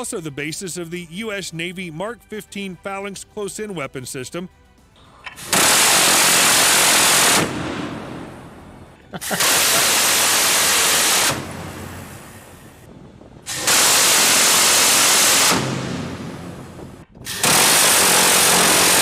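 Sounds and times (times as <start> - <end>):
rotary cannon firing bursts: 5.4 - 12.6, 13.5 - 19.0.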